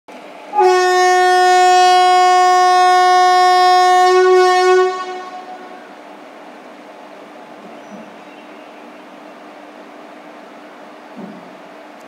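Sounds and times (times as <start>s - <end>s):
locomotive horn blast: 0.5s - 6.0s.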